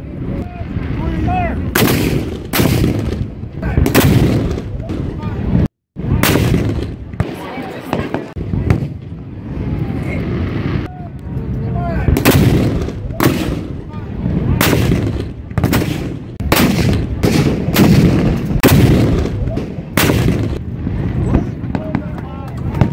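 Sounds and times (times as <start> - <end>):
fireworks bursting: 0.2 - 10.9, 12.1 - 22.9
cannon booms: 1.6 - 9.2, 12.0 - 22.2.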